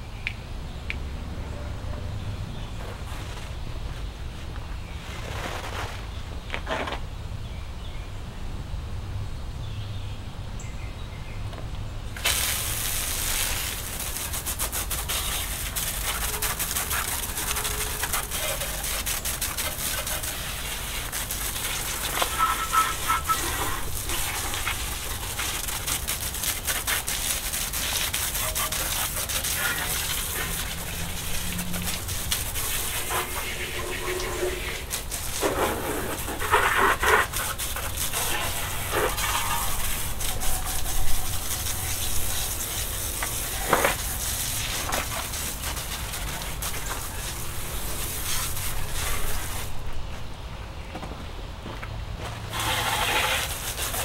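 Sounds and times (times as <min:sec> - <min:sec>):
water spray hissing: 0:12.2 - 0:50.0, 0:52.5 - 0:54.0
scrubbing rubbing: 0:13.7 - 0:49.8, 0:52.5 - 0:54.0.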